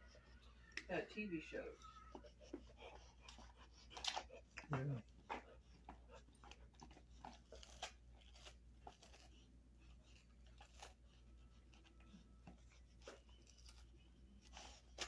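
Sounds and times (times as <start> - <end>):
dog gnawing on a chew: 2.1 - 15.0.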